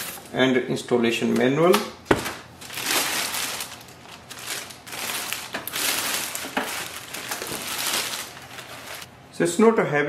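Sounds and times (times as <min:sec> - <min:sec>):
plastic bag crinkling: 0:02.1 - 0:09.1.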